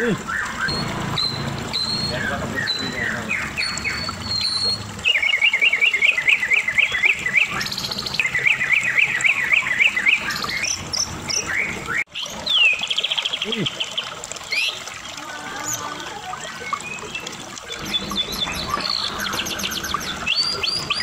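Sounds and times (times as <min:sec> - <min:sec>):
songbird whistling fast runs: 0:00.3 - 0:12.8.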